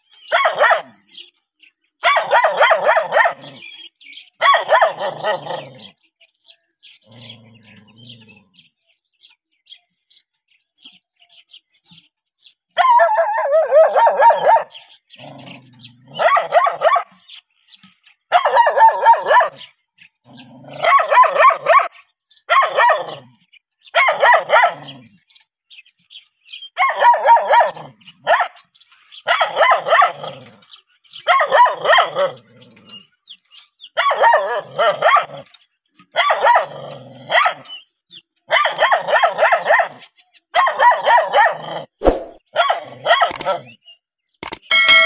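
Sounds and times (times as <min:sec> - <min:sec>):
dog barking: 0:00.3 - 0:01.1, 0:02.0 - 0:03.7, 0:04.4 - 0:05.8, 0:12.8 - 0:14.8, 0:16.1 - 0:17.2, 0:18.3 - 0:19.7, 0:20.7 - 0:23.2, 0:23.9 - 0:25.0, 0:26.8 - 0:30.4, 0:31.2 - 0:32.5, 0:34.0 - 0:35.5, 0:36.1 - 0:37.7, 0:38.5 - 0:43.8.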